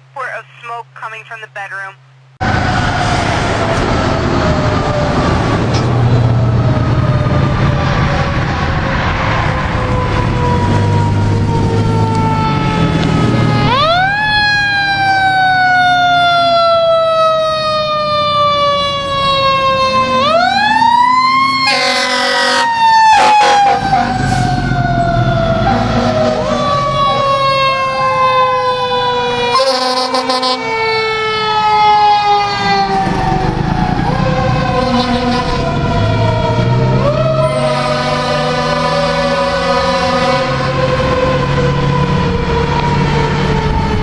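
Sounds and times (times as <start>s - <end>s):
second siren wailing: 2.4s - 44.0s
siren wailing: 2.4s - 44.0s
short horn blasts: 21.7s - 23.8s, 29.6s - 30.6s.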